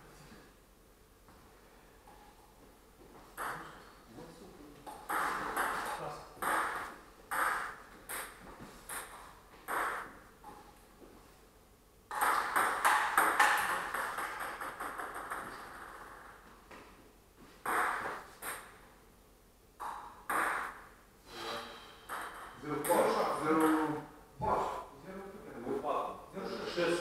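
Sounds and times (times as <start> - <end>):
table tennis ball clicking off paddles: 12.1 - 15.7.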